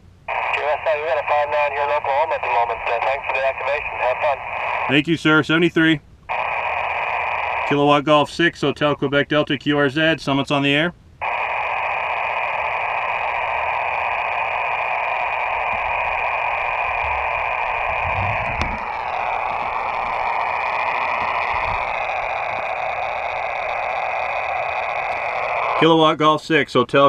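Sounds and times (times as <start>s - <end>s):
radio band noise hiss: 0.0s - 9.4s, 11.2s - 26.2s
faint radio whistles: 0.3s - 4.9s, 11.2s - 25.8s.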